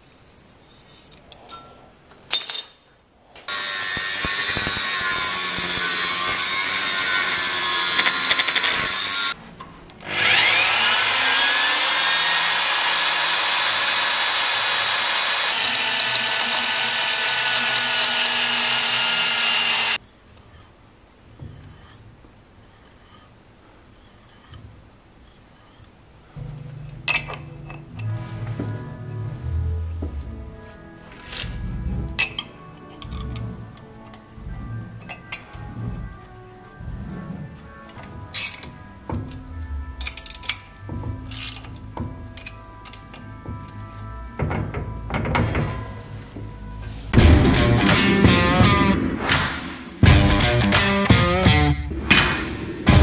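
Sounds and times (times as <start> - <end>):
electric drill boring into steel: 3.5 - 9.4, 10.0 - 20.0.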